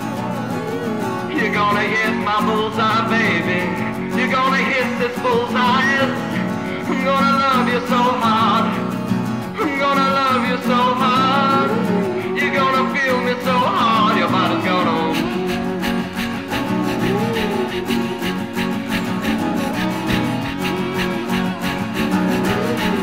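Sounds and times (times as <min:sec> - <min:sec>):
guitar accompaniment: 0:00.0 - 0:23.0
man singing long wavering notes: 0:09.6 - 0:23.0.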